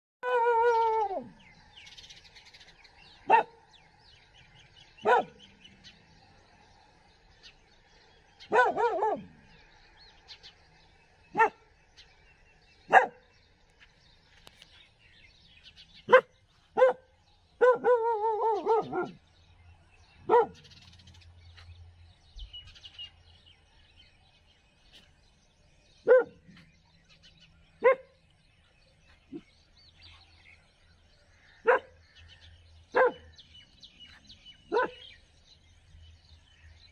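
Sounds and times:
birds chirping faintly: 0.2s - 36.9s
dog barking: 3.2s - 3.6s, 5.0s - 5.5s, 8.4s - 9.4s, 11.3s - 11.6s, 12.9s - 13.2s, 16.1s - 19.2s, 20.2s - 20.7s, 26.0s - 26.7s, 27.8s - 28.2s, 31.6s - 32.0s, 32.9s - 33.4s, 34.6s - 35.1s.

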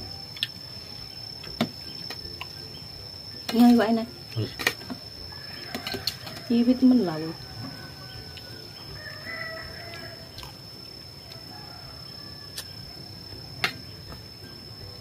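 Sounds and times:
steady high-pitched whine: 0.0s - 15.0s.

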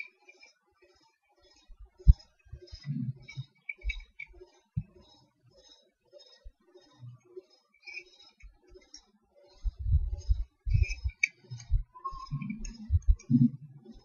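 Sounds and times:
scroll wheel ticks: 0.0s - 14.0s
computer mouse clicks: 7.8s - 14.0s.

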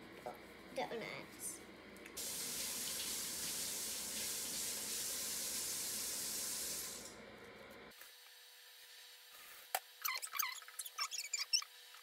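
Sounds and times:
running water: 2.2s - 7.1s.

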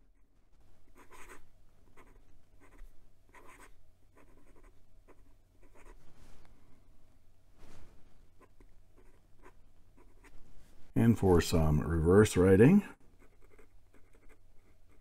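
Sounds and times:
pen nib scratching paper: 1.0s - 1.4s, 2.0s - 6.0s, 13.2s - 15.0s.

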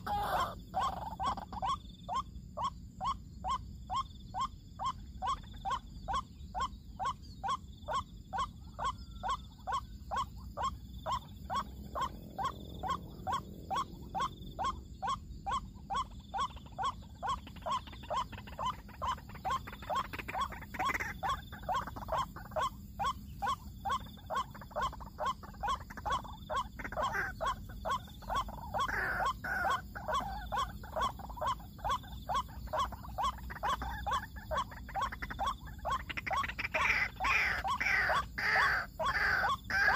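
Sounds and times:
irregular higher bird calls: 0.0s - 39.9s
waterhen calls: 0.0s - 39.9s.

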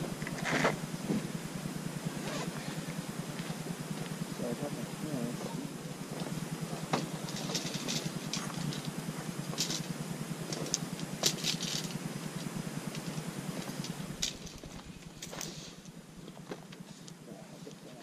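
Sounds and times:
steady low rumble: 0.0s - 17.3s
light clicks and rattles of parts: 6.1s - 18.0s.

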